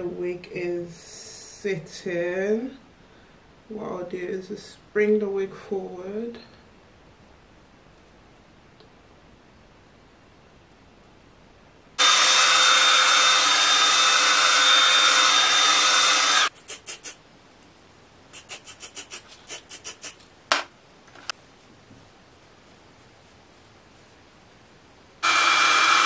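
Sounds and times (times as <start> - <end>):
hairspray can hissing: 16.2 - 17.2, 18.3 - 20.2
short spray bursts: 16.5 - 17.2, 18.3 - 20.2.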